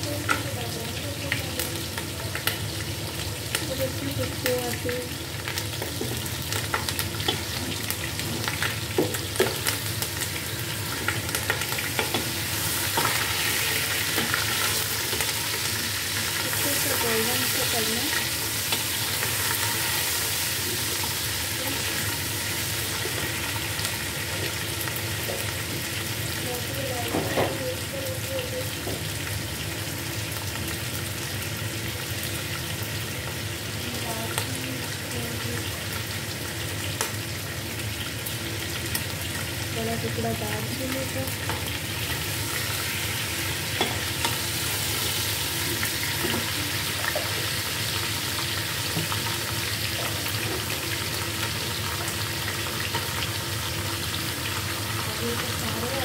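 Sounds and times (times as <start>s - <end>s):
chicken sizzling in hot oil: 0.0s - 56.0s.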